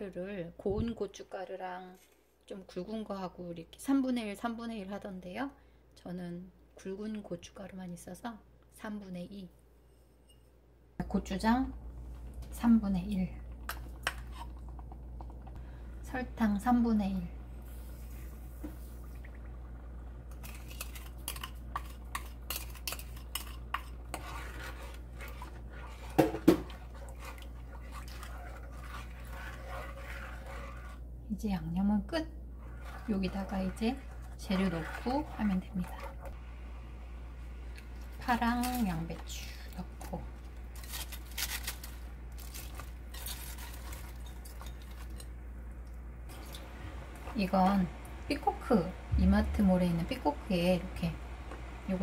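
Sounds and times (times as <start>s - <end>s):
steady low hum: 10.8s - 52.0s
crisp vegetable rustles: 38.4s - 45.2s.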